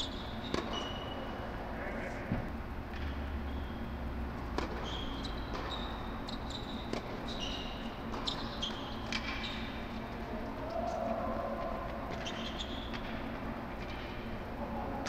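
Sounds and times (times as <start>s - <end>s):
tennis shoes squeaking on court: 0.0s - 1.3s, 4.6s - 9.8s, 12.1s - 13.1s
steady low hum: 0.0s - 15.0s
racket hitting tennis ball: 4.5s - 4.9s.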